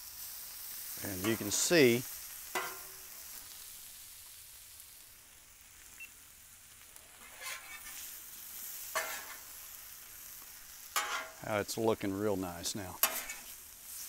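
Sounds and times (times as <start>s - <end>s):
food sizzling on a griddle: 0.0s - 14.0s
metal spatula scraping: 1.0s - 3.2s, 7.2s - 8.2s, 8.8s - 9.5s, 10.9s - 11.4s, 13.0s - 14.0s.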